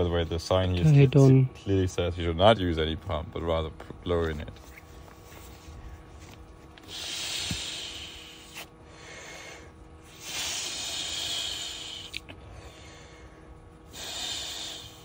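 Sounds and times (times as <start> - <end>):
person blowing into air mattress valve: 6.8 - 13.1, 13.8 - 15.0.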